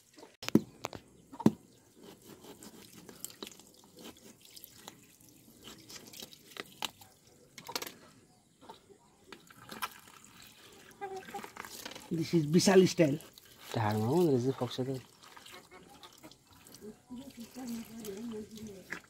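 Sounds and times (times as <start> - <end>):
tap water trickling and dripping: 2.6 - 7.6, 9.3 - 19.0.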